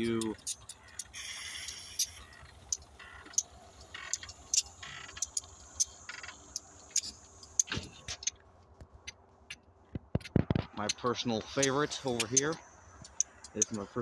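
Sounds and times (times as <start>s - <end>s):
hissy rail noise: 0.2s - 3.0s.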